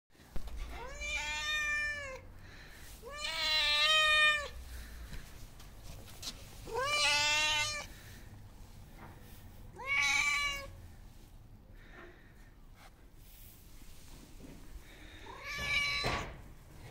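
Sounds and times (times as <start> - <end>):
cat meowing: 0.7 - 2.2, 3.0 - 4.6, 6.6 - 7.9, 9.7 - 10.8, 15.2 - 16.4.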